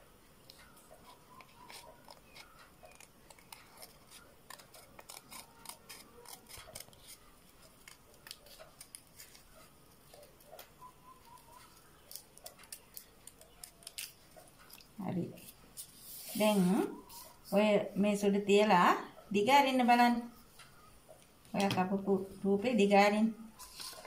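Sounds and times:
scissors snipping paper: 0.5s - 10.7s, 11.3s - 14.9s
paper rustling: 0.5s - 17.3s, 23.6s - 24.0s.

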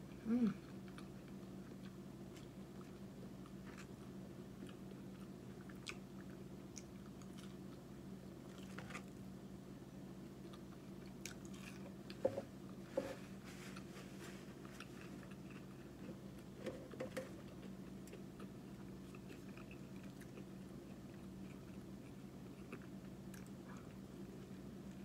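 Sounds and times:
steady low hum: 0.0s - 25.0s
chewing and biting food: 0.6s - 7.8s, 8.4s - 9.2s, 10.3s - 12.2s, 14.5s - 16.6s, 17.3s - 24.6s.

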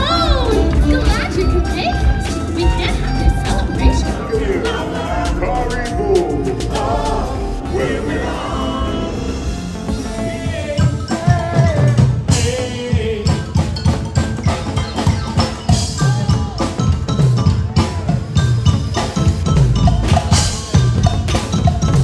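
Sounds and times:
drum kit beat: 0.0s - 22.0s
melody: 0.6s - 11.8s.

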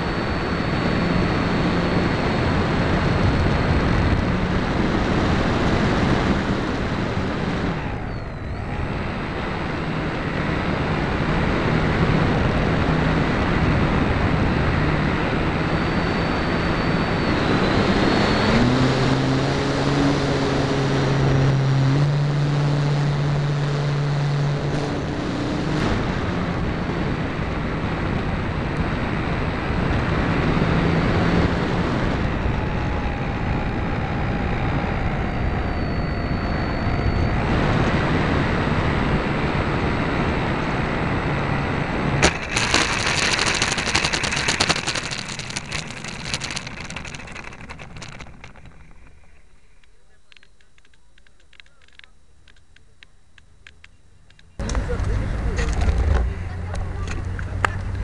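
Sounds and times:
heavy wind rush: 0.0s - 21.2s, 24.8s - 49.9s
model airplane motor and propeller: 0.0s - 58.0s.

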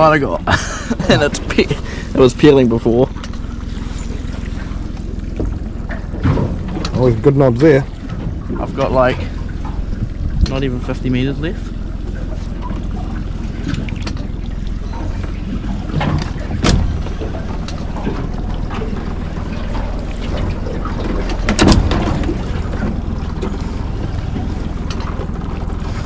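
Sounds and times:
water against a boat: 0.0s - 26.0s
wind on microphone: 9.8s - 10.9s.

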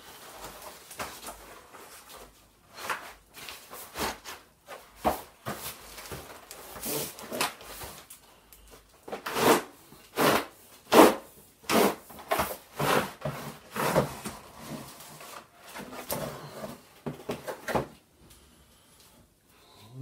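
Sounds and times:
cardboard box scraping: 9.1s - 17.8s.

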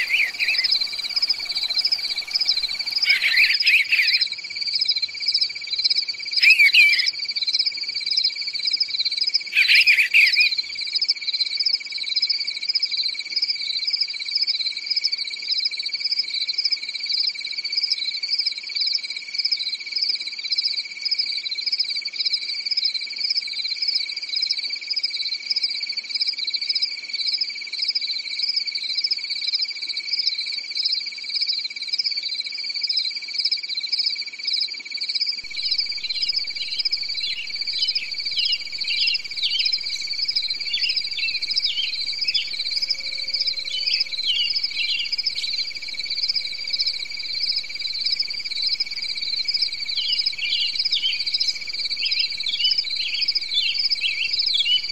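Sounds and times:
insects trilling: 0.0s - 11.4s, 35.4s - 54.9s.

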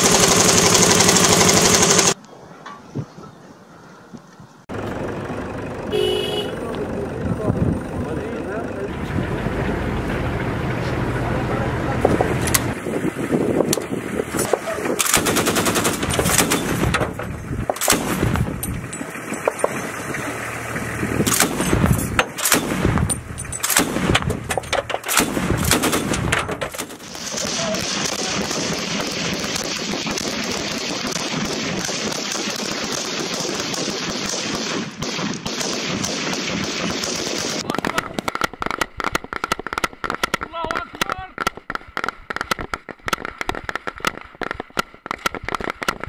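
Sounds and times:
heavy machine gun bursts: 0.0s - 2.2s, 14.3s - 42.4s.

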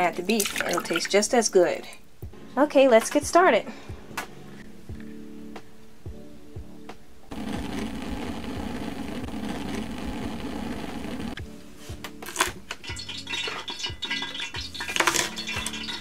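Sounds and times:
background music: 0.0s - 16.0s.

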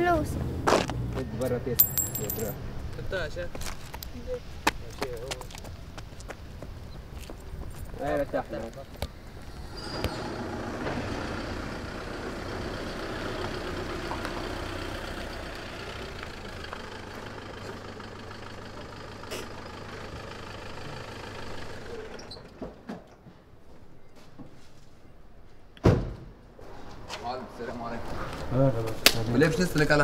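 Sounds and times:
car engine idling: 9.2s - 22.2s
car door slamming: 25.8s - 26.3s.

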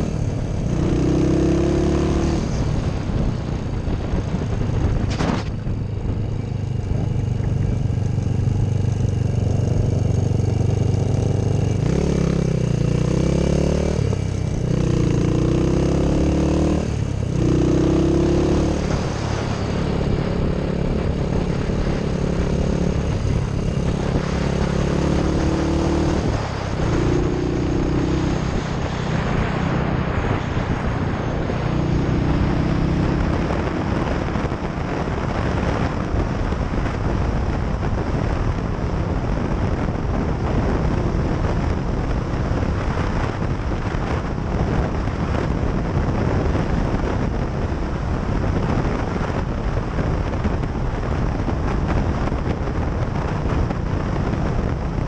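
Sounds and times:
motorcycle engine running: 0.0s - 55.0s
wind rushing over microphone: 0.0s - 55.0s.

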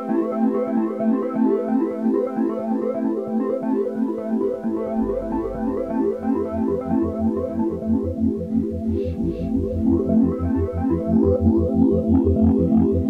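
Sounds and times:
low bass line: 4.5s - 13.0s.

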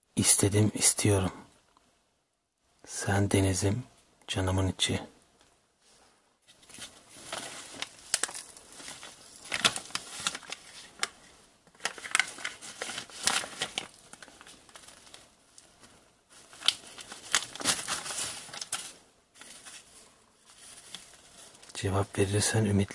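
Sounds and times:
paper crinkling and rustling: 6.4s - 21.8s.

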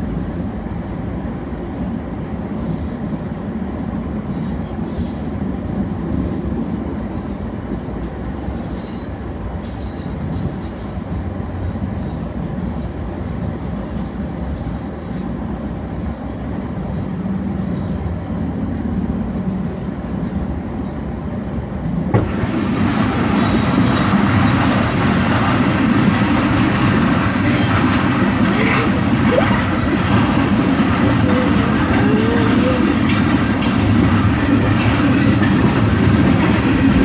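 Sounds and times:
train wheels rumbling on rails: 0.0s - 37.0s.

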